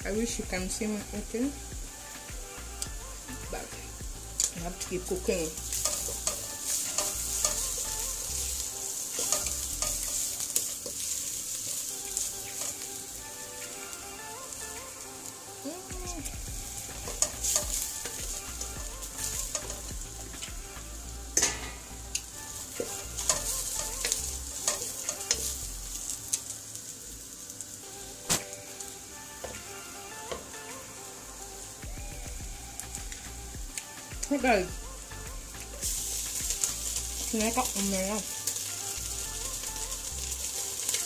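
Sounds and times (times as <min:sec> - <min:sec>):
fish sizzling in oil: 0:00.0 - 0:41.0
wooden spoon scraping and knocking pot: 0:04.4 - 0:08.6.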